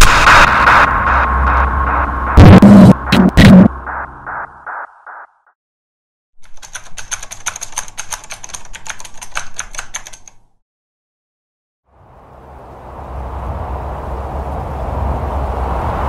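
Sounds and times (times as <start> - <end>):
pulsing tone: 0.0 - 5.5
typewriter key strikes: 6.4 - 10.4.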